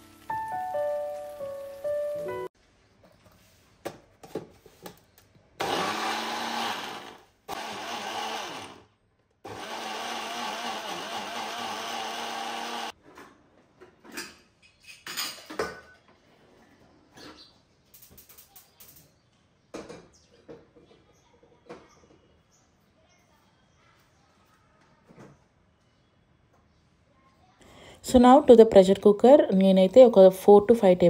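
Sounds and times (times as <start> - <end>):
mixer grinder grinding: 5.6 - 13.0.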